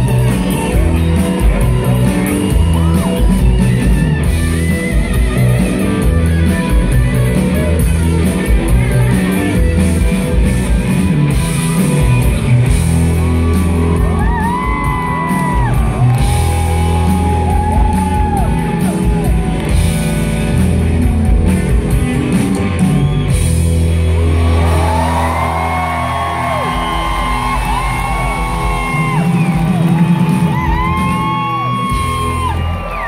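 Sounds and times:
audience shouting and cheering: 0:00.0 - 0:33.0
live rock band playing: 0:00.0 - 0:33.0.

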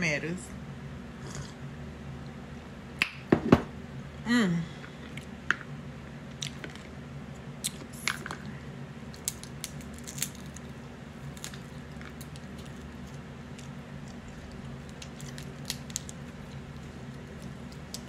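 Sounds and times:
crab shells cracking: 0:09.1 - 0:18.0.

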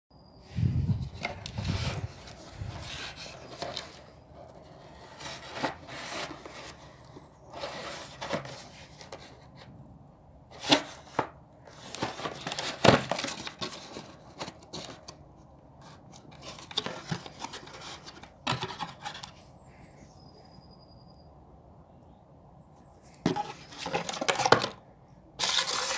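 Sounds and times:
cardboard box rubbing and scraping: 0:00.9 - 0:09.4, 0:25.4 - 0:25.9.

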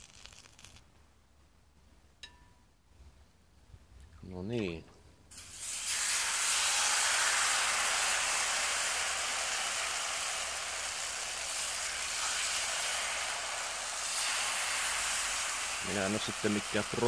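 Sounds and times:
batter sizzling on a griddle: 0:00.0 - 0:00.8, 0:05.3 - 0:17.0.

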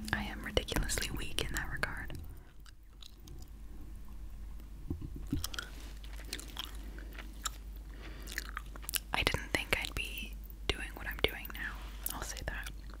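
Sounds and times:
gum chewing mouth clicks: 0:01.5 - 0:03.6, 0:05.2 - 0:09.1.

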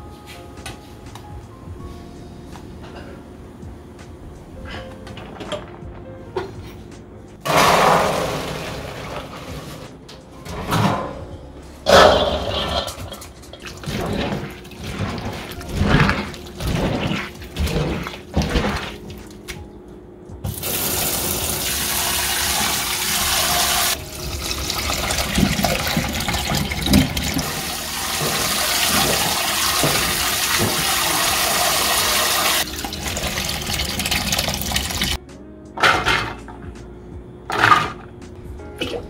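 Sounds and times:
water pouring into a sink: 0:20.5 - 0:35.2.

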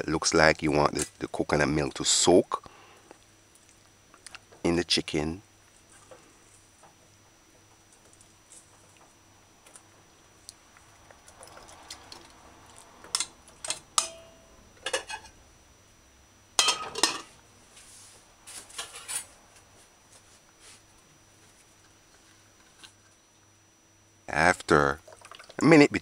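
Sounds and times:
fork clinking against metal bowl: 0:14.0 - 0:15.1.

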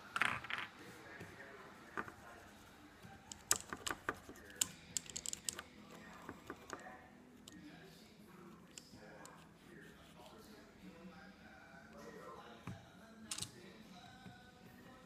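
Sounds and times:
sharp irregular clicks and taps: 0:03.3 - 0:06.9.

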